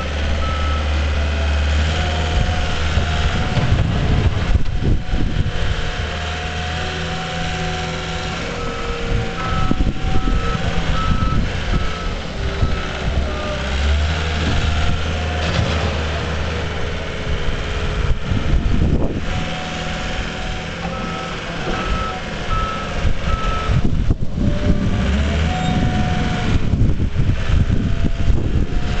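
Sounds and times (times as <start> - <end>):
wheel loader engine running: 0.0 - 29.0
reversing alarm beeping: 0.4 - 1.0, 7.9 - 13.9, 20.8 - 23.8, 24.7 - 26.6.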